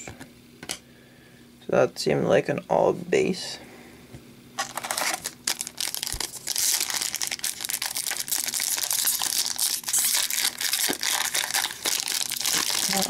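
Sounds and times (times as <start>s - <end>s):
foil wrapper crinkling and tearing: 4.6s - 13.0s.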